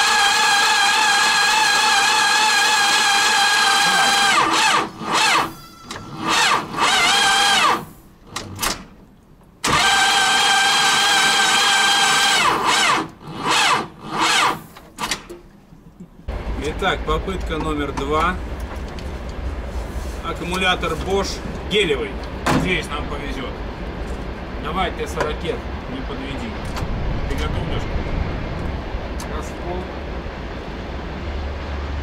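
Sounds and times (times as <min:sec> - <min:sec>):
tractor electric starter whining: 0:00.0 - 0:08.9, 0:09.6 - 0:15.3.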